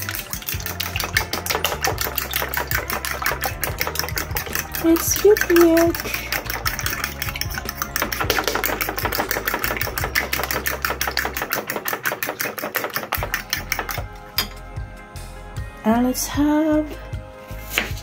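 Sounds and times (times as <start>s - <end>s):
fork beating eggs in a bowl: 0.0s - 14.2s.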